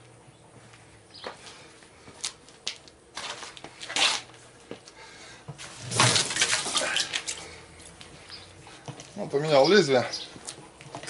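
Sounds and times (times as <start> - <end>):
footsteps scuffing on concrete: 0.6 - 5.7.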